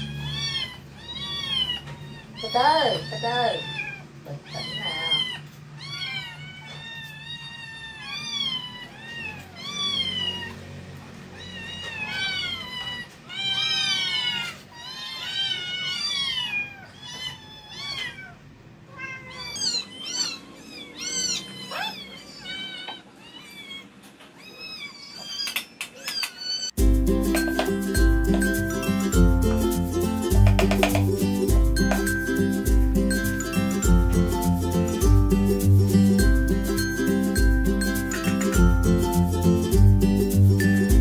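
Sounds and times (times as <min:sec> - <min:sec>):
kittens meowing: 0:00.0 - 0:26.8.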